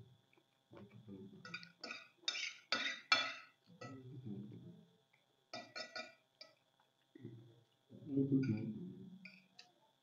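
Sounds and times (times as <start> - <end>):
fork scraping ceramic plate: 1.5 - 3.5.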